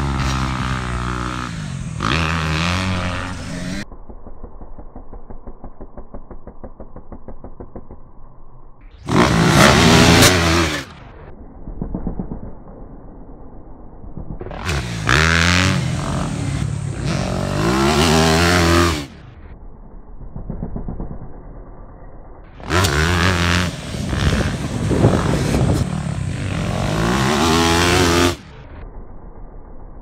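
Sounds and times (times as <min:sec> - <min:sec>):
motocross bike revving: 0:00.0 - 0:03.8, 0:09.0 - 0:11.1, 0:14.2 - 0:19.2, 0:22.6 - 0:28.5.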